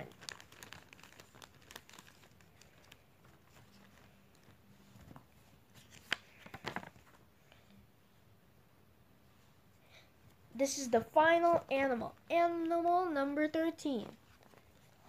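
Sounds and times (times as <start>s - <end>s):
book pages flipping: 0.0s - 7.3s, 14.0s - 15.0s
paper and plastic rustling: 0.0s - 7.3s, 13.9s - 15.0s.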